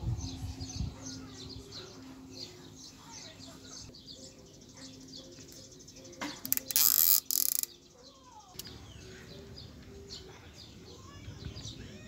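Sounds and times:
birds chirping: 0.0 - 12.0
zip tie zipping rattle: 6.4 - 7.7.

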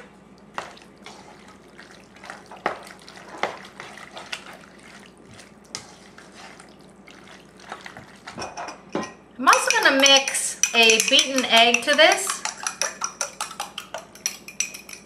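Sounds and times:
pasta squelching: 0.0 - 8.8, 9.5 - 15.0
spoon scraping metal pot: 9.5 - 15.0.

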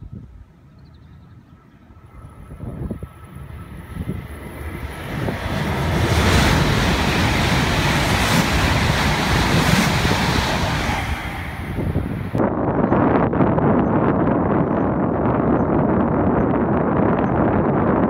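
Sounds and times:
high-speed train passing: 1.4 - 12.5.

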